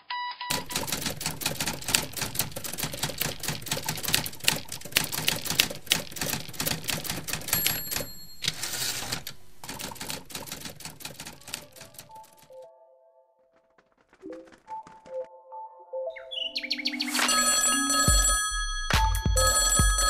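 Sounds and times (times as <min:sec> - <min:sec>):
typewriter bell ring: 0:00.5 - 0:12.4, 0:17.1 - 0:20.0
typewriter keystrokes: 0:00.5 - 0:12.5.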